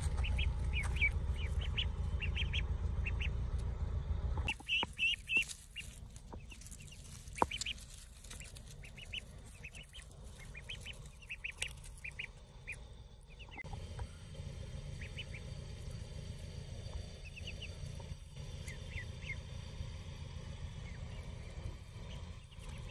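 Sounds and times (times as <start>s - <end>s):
ducklings peeping: 0.0s - 22.9s
dry leaves rustling: 4.5s - 12.8s.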